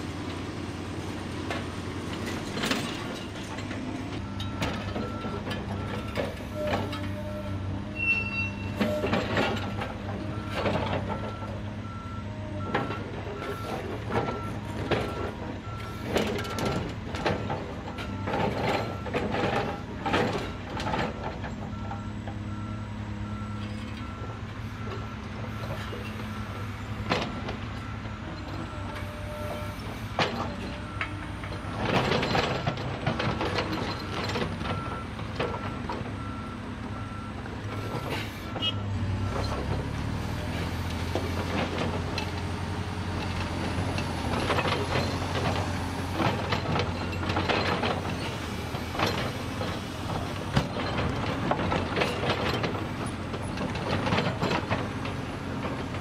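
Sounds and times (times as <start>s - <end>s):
diesel engines running: 0.0s - 56.0s
clanks and rattles: 1.4s - 7.2s, 12.6s - 22.4s, 25.7s - 39.9s, 40.5s - 56.0s
reversing alarm beeping: 27.3s - 39.6s.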